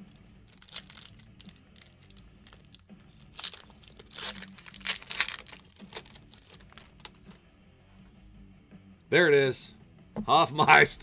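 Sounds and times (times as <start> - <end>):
foil wrapper crinkling and tearing: 0.0 - 7.2.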